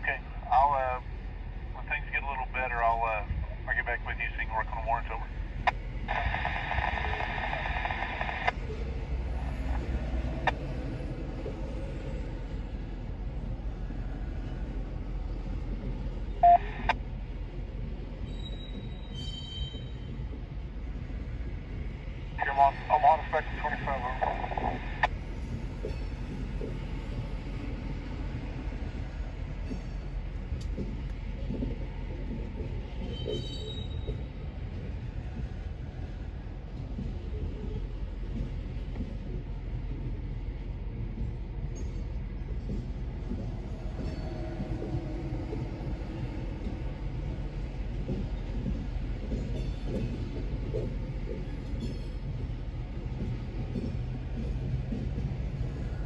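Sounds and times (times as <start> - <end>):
train wheels rumbling on rail: 0.0 - 56.0
radio static hiss: 1.8 - 5.3, 6.1 - 8.6, 22.4 - 25.1
radio click: 3.8 - 8.6, 22.4 - 25.1.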